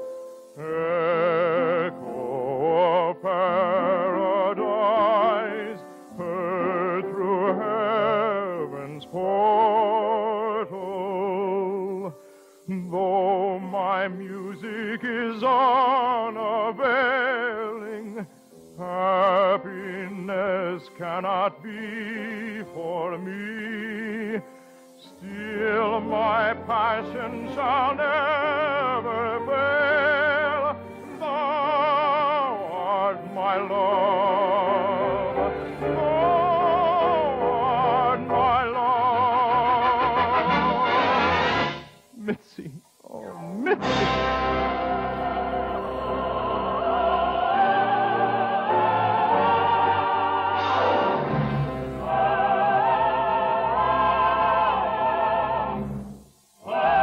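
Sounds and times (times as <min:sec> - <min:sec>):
operatic solo singing: 0:00.5 - 0:57.0
orchestra playing: 0:39.2 - 0:42.1, 0:43.2 - 0:46.0, 0:48.4 - 0:52.6.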